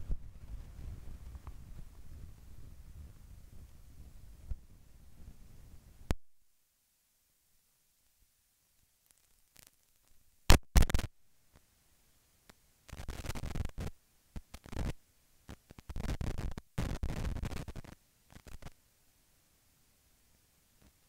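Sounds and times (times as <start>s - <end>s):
scratchy crackling: 9.0s - 11.1s, 12.9s - 18.8s
sharp loud clicks: 10.5s - 11.1s.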